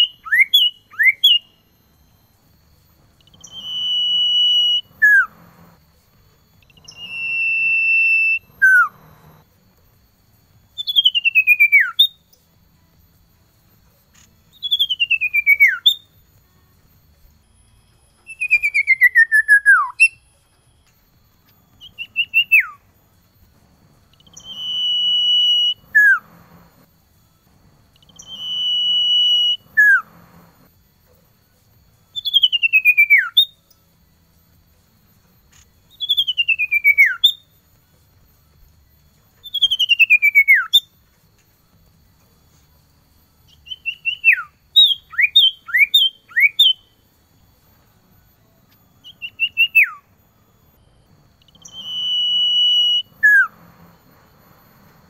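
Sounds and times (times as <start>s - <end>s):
bird singing whistled phrases: 0.0s - 1.6s, 3.2s - 5.7s, 6.6s - 9.4s, 10.7s - 12.3s, 14.5s - 16.1s, 18.2s - 20.3s, 21.8s - 22.8s, 24.1s - 26.8s, 28.0s - 30.4s, 32.1s - 33.6s, 35.9s - 37.5s, 39.4s - 40.9s, 43.5s - 46.9s, 49.0s - 50.1s, 51.4s - 53.6s.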